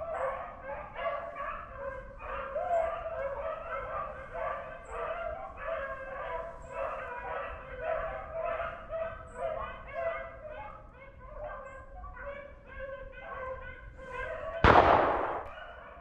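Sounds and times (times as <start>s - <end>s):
beagles baying: 0.0s - 16.0s.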